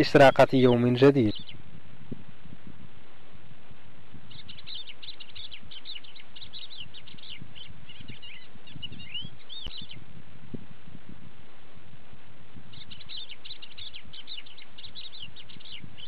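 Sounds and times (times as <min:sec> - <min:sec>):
lark singing: 0:00.0 - 0:01.6, 0:04.3 - 0:10.0, 0:12.7 - 0:16.0
steady low background noise: 0:00.0 - 0:16.0.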